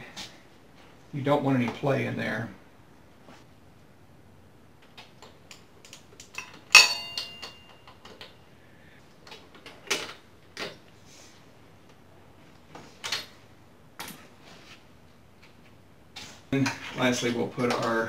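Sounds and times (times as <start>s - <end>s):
metal clank: 6.7s - 7.8s.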